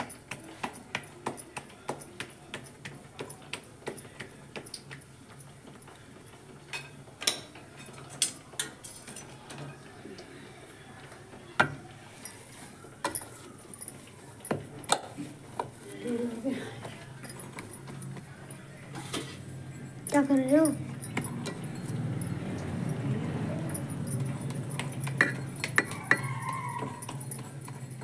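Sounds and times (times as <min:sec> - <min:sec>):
hands patting dough: 0:11.6 - 0:18.6.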